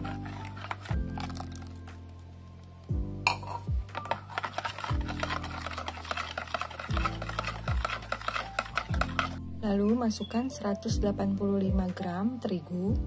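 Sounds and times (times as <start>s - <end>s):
whisk beating in a bowl: 0.0s - 1.7s, 3.9s - 9.4s.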